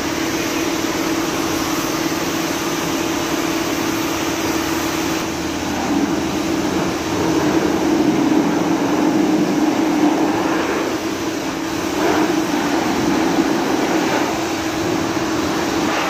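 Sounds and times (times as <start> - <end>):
pressure washer spray hissing: 0.0 - 16.0
pump humming: 0.0 - 16.0.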